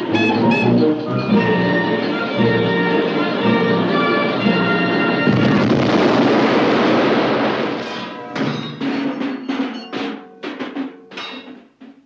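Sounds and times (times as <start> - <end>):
percussive strikes: 0.0 - 5.6, 8.1 - 12.0
orchestral music: 0.0 - 6.3.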